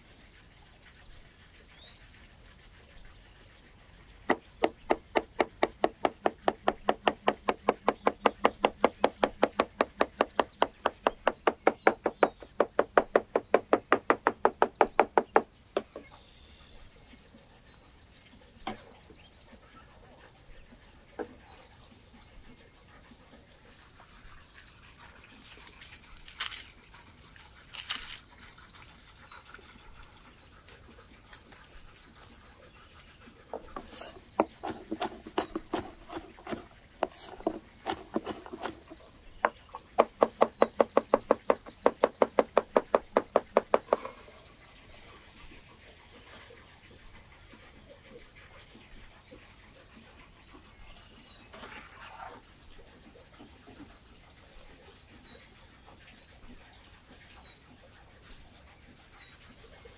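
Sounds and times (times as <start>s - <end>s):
small birds chirping: 0.0s - 2.2s, 4.3s - 22.8s, 27.3s - 57.7s
knife chopping on wooden board: 4.3s - 16.1s, 33.6s - 44.1s
dry garlic bulbs crackling: 25.4s - 26.7s.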